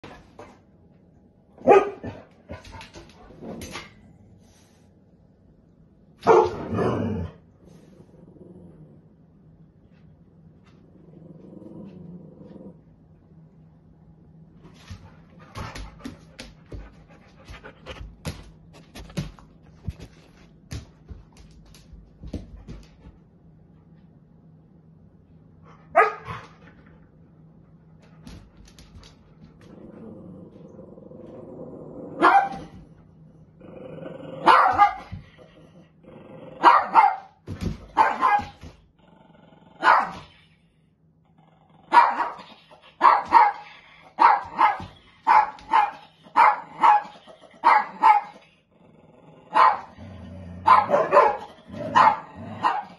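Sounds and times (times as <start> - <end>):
paws on hardwood floor: 0.0 - 4.8, 14.6 - 24.2, 25.7 - 27.1, 27.7 - 30.7, 34.5 - 35.6, 37.5 - 38.9, 42.4 - 47.2
dogs barking: 1.6 - 2.3, 6.2 - 6.8, 26.0 - 26.4, 34.4 - 35.1, 36.6 - 37.4, 38.0 - 38.6, 39.8 - 40.2, 41.9 - 48.4, 49.5 - 50.0, 50.6 - 52.9
dog growling: 6.6 - 9.3, 10.8 - 13.0, 29.6 - 32.2, 33.6 - 34.5, 35.3 - 36.7, 39.0 - 39.9, 41.2 - 42.0, 48.5 - 52.9.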